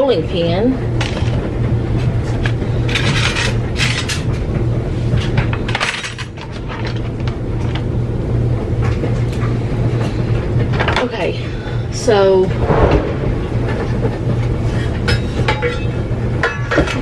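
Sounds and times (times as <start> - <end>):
low hum: 11.4 - 16.6.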